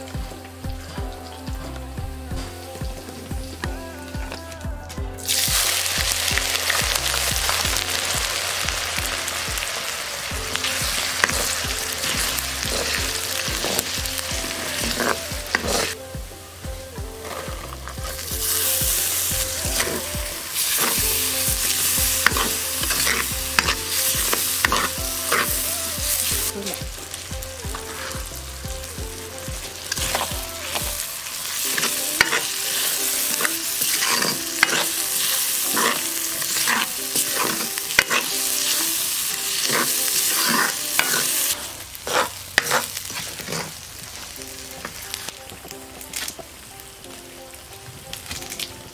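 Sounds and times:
oil sizzling in a pan: 0.0s - 48.9s
wooden spatula scraping a pan: 10.4s - 16.0s, 17.0s - 46.4s.

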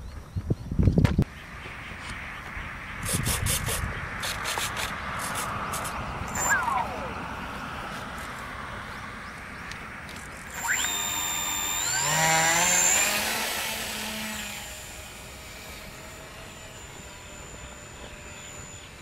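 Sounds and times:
electric motors and propellers whining: 0.9s - 19.0s.

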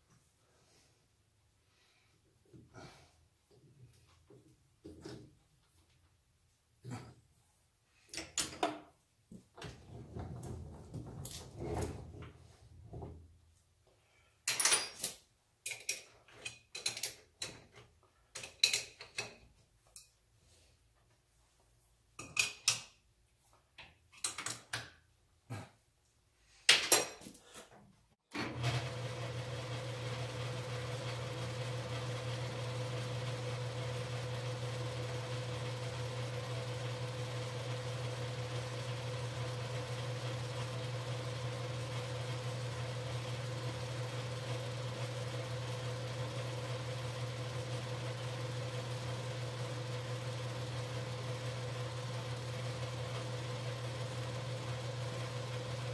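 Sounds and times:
metal lathe humming: 28.6s - 55.9s.

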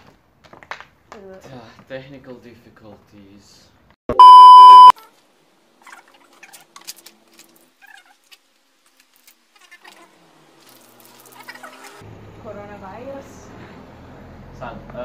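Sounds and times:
test-card beep: 4.1s - 4.9s.

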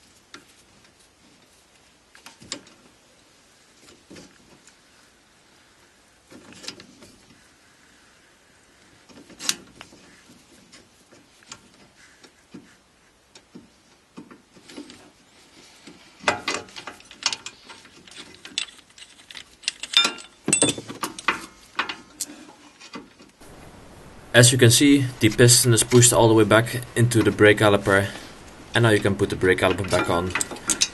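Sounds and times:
small metal clicks: 15.8s - 23.4s, 29.6s - 30.9s
clatter of metal knocks: 18.2s - 22.0s.

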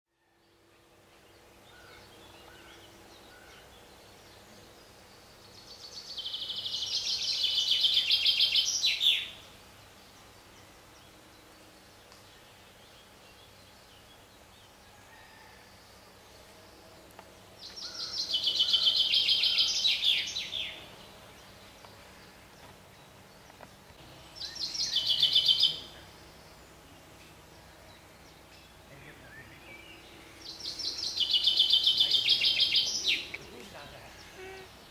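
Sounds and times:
faint background noise: 0.1s - 34.9s
songbird singing high notes: 24.4s - 26.4s, 29.1s - 33.6s.

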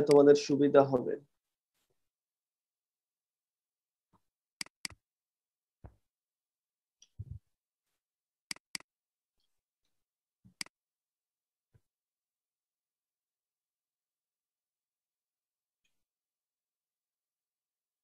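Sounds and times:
computer mouse buttons clicking: 4.6s - 5.0s, 8.5s - 8.9s.

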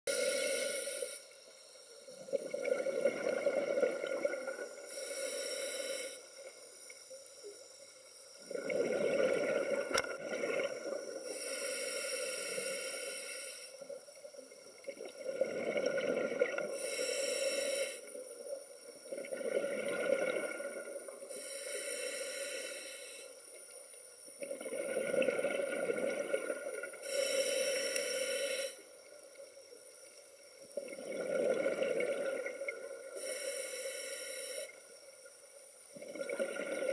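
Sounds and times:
regulator inhale hiss: 0.1s - 2.3s, 4.5s - 8.4s, 10.8s - 14.2s, 16.6s - 19.0s, 20.8s - 24.2s, 26.8s - 30.1s, 33.0s - 35.8s
exhaled bubbling underwater: 2.2s - 5.1s, 8.4s - 11.4s, 14.4s - 17.1s, 19.0s - 21.6s, 24.4s - 27.2s, 30.6s - 33.3s, 35.9s - 36.9s.

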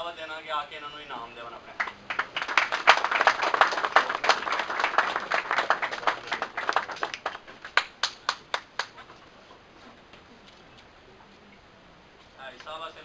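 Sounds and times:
people applauding: 1.8s - 9.0s.

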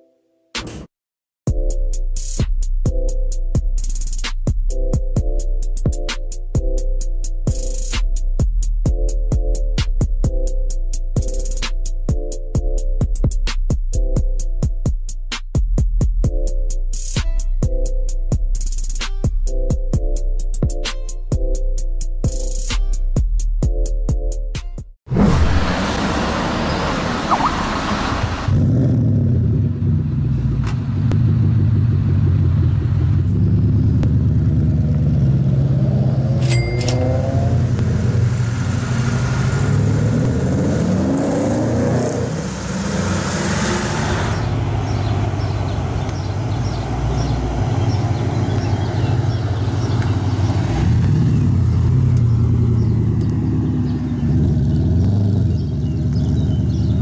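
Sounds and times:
car engine running: 25.1s - 41.2s, 43.9s - 57.0s.

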